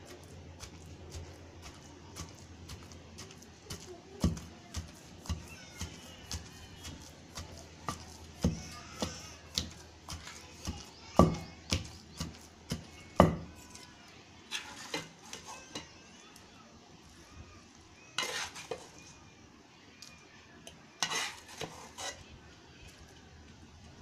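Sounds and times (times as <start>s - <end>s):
pestle pounding in stone mortar: 0.2s - 13.5s.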